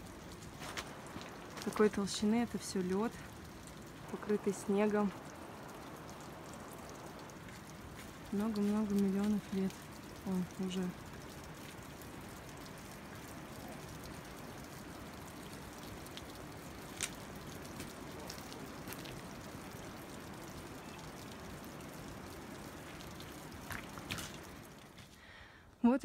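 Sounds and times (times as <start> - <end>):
meltwater trickling and dripping: 0.0 - 26.0.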